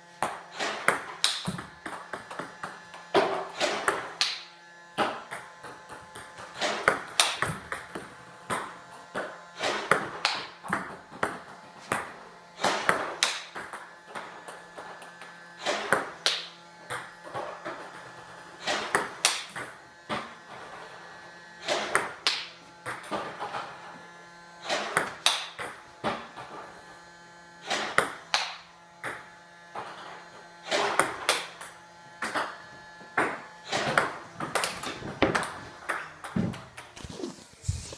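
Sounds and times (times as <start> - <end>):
ball bouncing on hard surface: 5.0 - 14.9, 21.9 - 23.4, 24.7 - 26.5, 33.2 - 37.8
table tennis ball clicks: 33.2 - 37.0.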